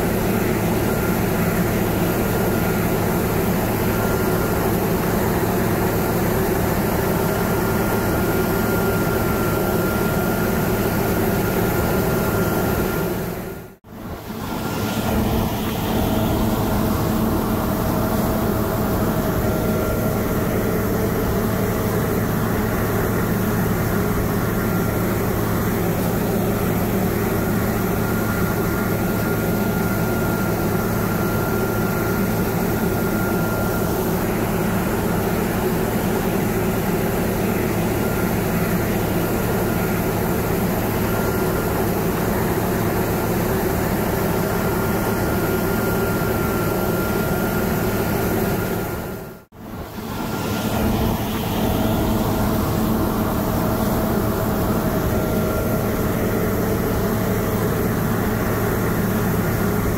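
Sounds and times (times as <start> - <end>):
combine harvester engine hum: 0.0 - 59.9.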